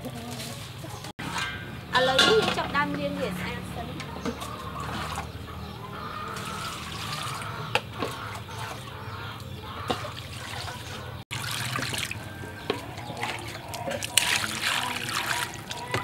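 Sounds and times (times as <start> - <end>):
water pouring and splashing: 4.2 - 5.4, 6.2 - 9.0, 9.8 - 16.0.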